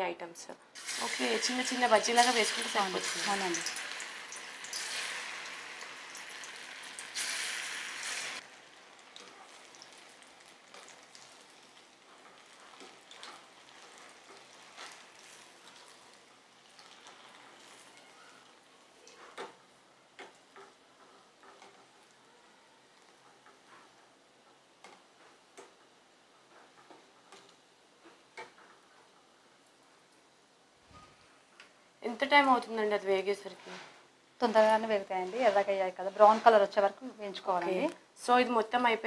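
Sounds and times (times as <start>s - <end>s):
oil crackling and popping: 0.8s - 19.6s
fritters sizzling in hot oil: 0.8s - 22.2s.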